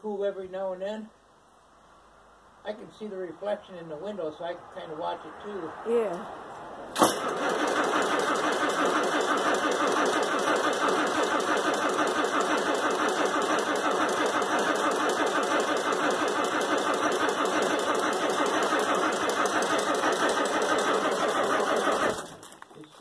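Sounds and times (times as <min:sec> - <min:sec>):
diesel engine cranking on starter: 0:06.9 - 0:22.7.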